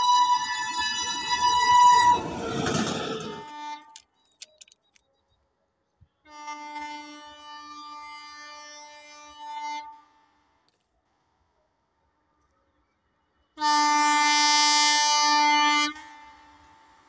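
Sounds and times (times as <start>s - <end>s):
distant locomotive horn: 0.0s - 2.4s, 3.1s - 4.0s, 6.2s - 10.4s, 13.4s - 17.0s
locomotive horn: 0.0s - 4.1s, 6.2s - 10.4s, 13.4s - 16.9s
train rumble: 0.0s - 4.1s.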